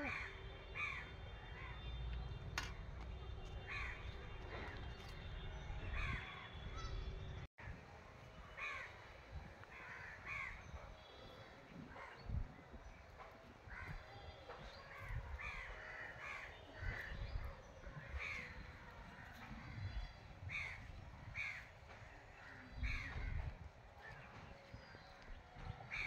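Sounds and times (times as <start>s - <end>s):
crows cawing: 9.7s - 10.6s, 15.4s - 17.1s.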